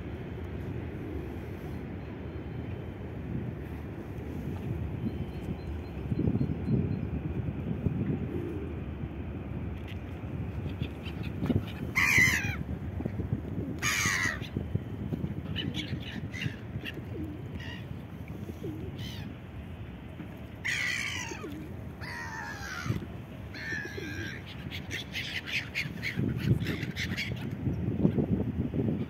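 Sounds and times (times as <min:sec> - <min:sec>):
low background rumble: 0:00.0 - 0:29.0
gulls calling harshly: 0:10.7 - 0:12.7, 0:13.8 - 0:14.8, 0:20.6 - 0:27.5.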